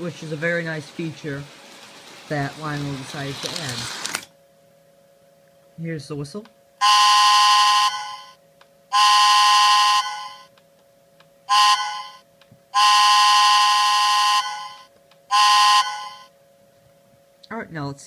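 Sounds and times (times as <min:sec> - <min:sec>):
faint steady hum: 0:00.0 - 0:18.0
toy train whistle blasts: 0:06.8 - 0:10.5, 0:11.5 - 0:12.2, 0:12.8 - 0:16.3.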